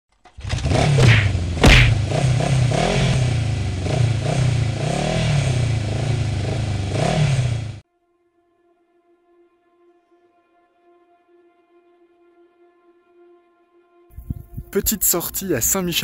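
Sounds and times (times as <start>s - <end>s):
motorcycle engine revving: 0.3s - 7.8s
loud thump: 0.4s - 2.2s.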